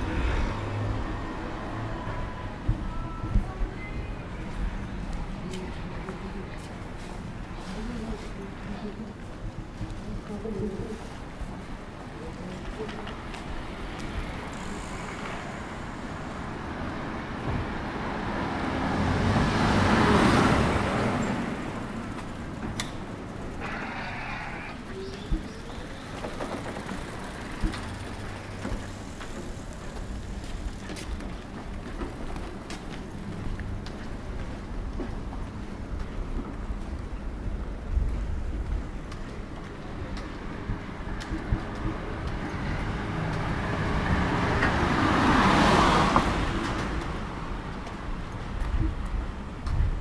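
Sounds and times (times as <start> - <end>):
low street rumble: 0.0 - 50.0
distant traffic and machinery hum: 11.6 - 50.0
car passing close by: 17.8 - 21.8, 42.9 - 47.2.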